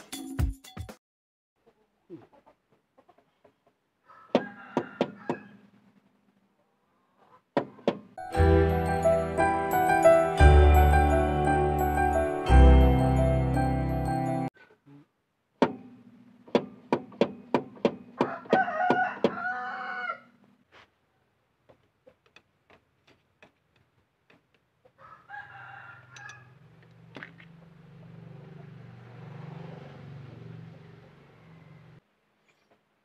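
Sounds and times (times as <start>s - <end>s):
rooster crowing: 4.0s - 5.6s, 18.2s - 20.4s, 25.0s - 26.6s.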